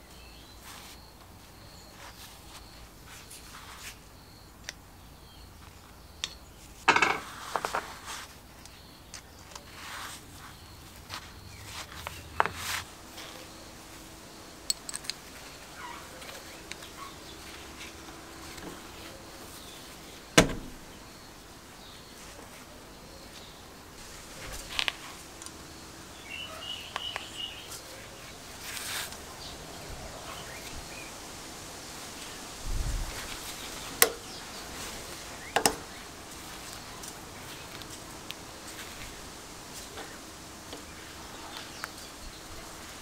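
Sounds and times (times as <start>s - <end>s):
small metal fittings clinking: 14.6s - 15.3s.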